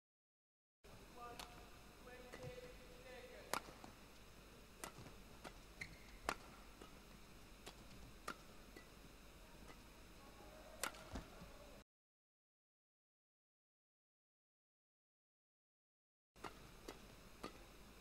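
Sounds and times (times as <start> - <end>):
court shoes squeaking: 2.2 - 2.8, 4.8 - 7.0
racket hitting shuttlecock: 2.2 - 2.8, 3.4 - 3.9, 4.8 - 7.0, 7.6 - 8.9, 10.8 - 11.3, 16.4 - 17.7.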